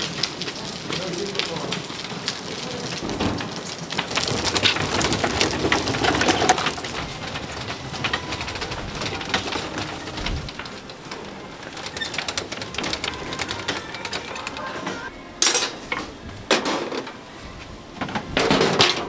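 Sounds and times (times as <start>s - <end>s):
food sizzling and bubbling: 0.0s - 13.8s
utensils clattering: 0.0s - 17.2s, 18.0s - 19.0s.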